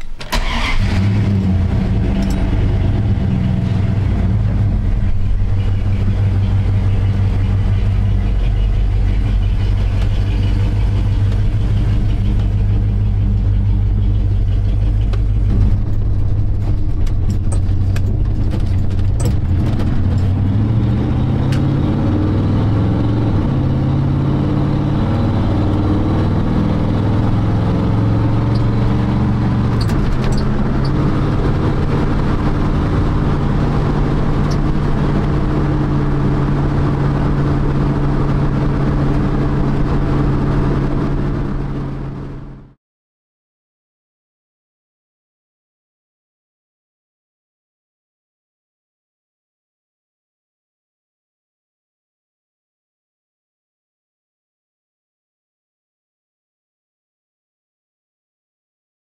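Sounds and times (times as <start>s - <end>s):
pickup truck engine from inside cab: 0.0s - 42.8s.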